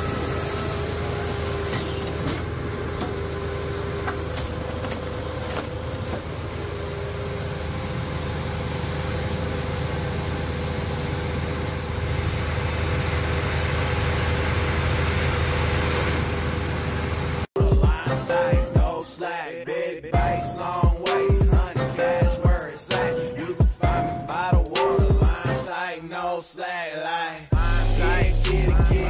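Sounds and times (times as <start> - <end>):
engine drone: 0.0 - 19.1, 27.5 - 29.0.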